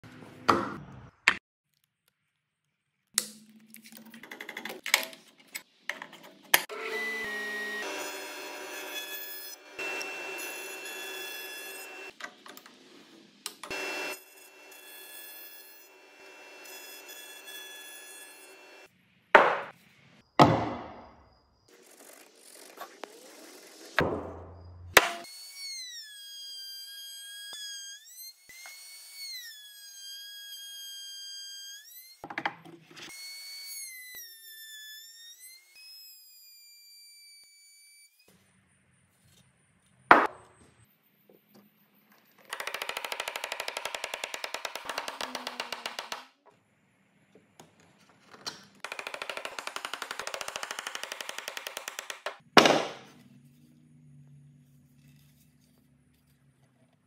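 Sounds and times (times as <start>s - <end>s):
router bit cutting wood: 6.7s - 12.1s, 13.7s - 18.9s, 42.5s - 46.3s
wooden blocks knocking: 19.4s - 19.7s, 42.5s - 46.3s, 48.9s - 53.1s.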